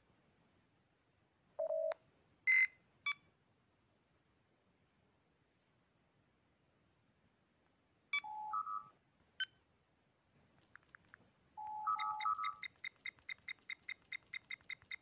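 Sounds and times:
two-tone computer beep: 1.6s - 3.2s, 8.2s - 9.5s, 11.6s - 15.0s
short keypress chirps: 11.7s - 15.0s.

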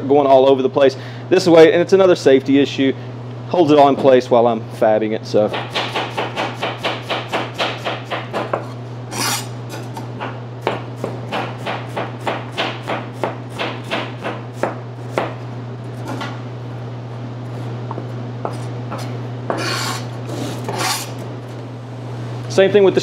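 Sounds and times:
steady low hum: 0.0s - 23.0s
knife chopping on cutting board: 5.5s - 9.5s, 10.2s - 15.4s.

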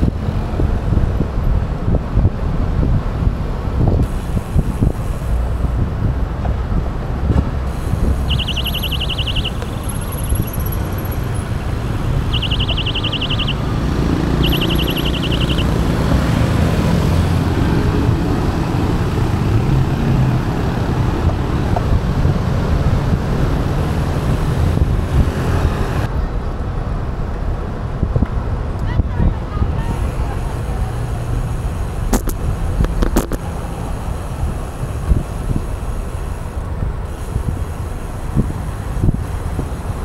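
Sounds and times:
road traffic: 0.0s - 40.0s
wind rumble on microphone: 0.0s - 40.0s
short high chirps: 8.0s - 10.9s, 12.2s - 13.7s, 14.3s - 15.8s.

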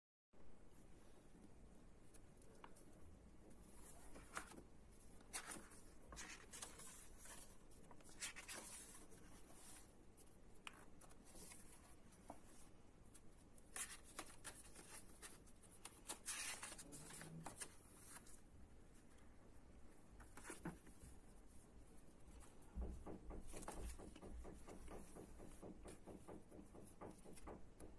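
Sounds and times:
book pages rustling: 2.0s - 18.4s, 20.2s - 21.6s.

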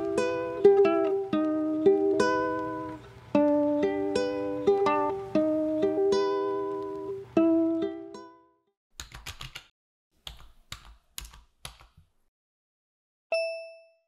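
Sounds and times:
plucked ukulele chord: 0.0s - 8.4s
keyboard typing clicks: 9.0s - 9.7s
bright bell-like ding: 13.3s - 14.0s.

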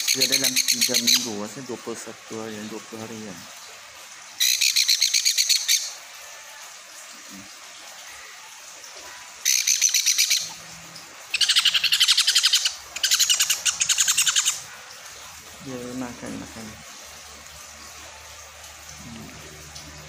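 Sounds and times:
parrot chick begging calls: 4.4s - 5.9s, 9.5s - 10.6s, 11.3s - 14.7s.

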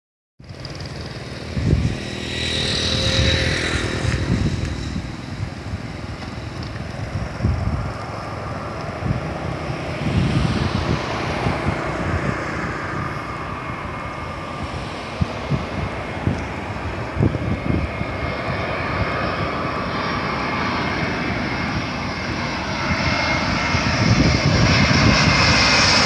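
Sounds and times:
motorbike engine passing: 0.4s - 5.6s
wind buffeting microphone: 0.4s - 26.0s.

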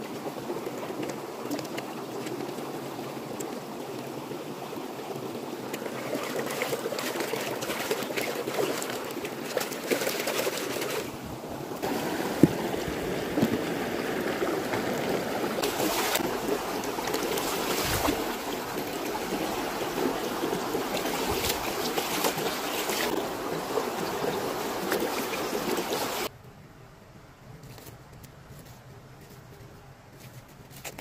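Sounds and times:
creek water babbling over rocks: 0.0s - 26.3s
hands splashing in water: 15.6s - 20.1s.

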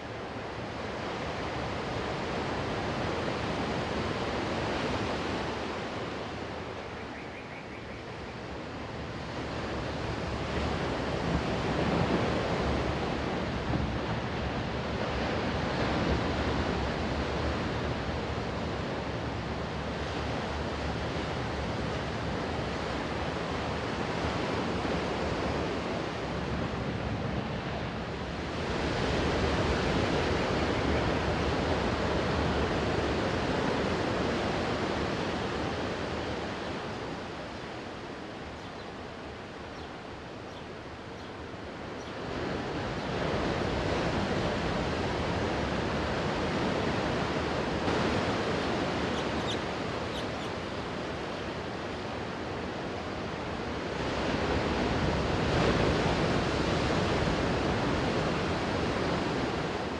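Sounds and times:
waves washing up a beach: 0.0s - 59.9s.

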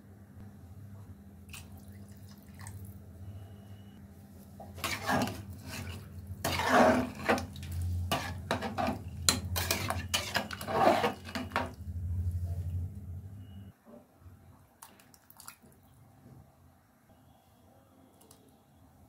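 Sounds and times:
steady low hum: 0.0s - 13.7s
metal ladle scraping pot: 4.7s - 11.8s.

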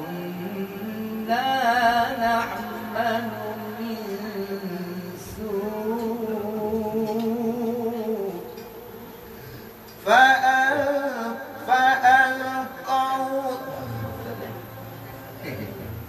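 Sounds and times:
man reciting melodically: 0.0s - 9.1s, 9.9s - 15.7s
second voice reciting: 10.0s - 15.9s.

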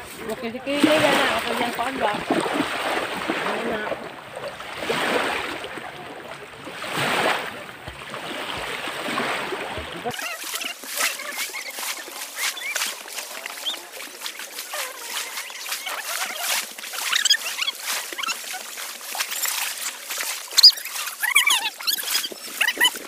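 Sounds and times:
small waves splashing: 0.0s - 23.0s
high-pitched cries: 20.5s - 23.0s.

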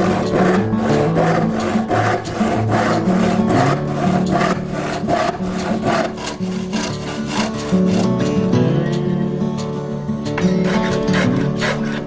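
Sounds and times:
handsaw cutting wood: 0.0s - 8.2s, 10.6s - 12.0s.

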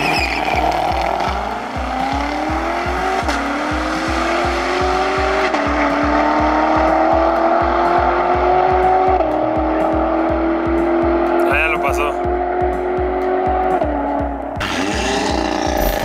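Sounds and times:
background music with steady beat: 0.0s - 16.0s
car engines accelerating hard: 0.0s - 16.0s.

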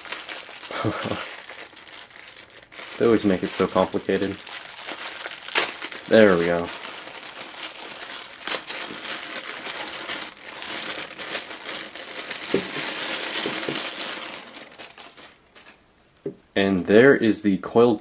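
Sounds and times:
plastic bag crinkling: 0.0s - 15.8s.

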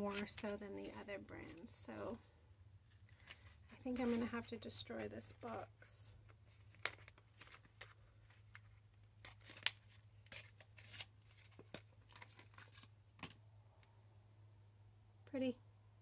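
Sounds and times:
cardboard tearing and rustling: 9.2s - 13.3s.

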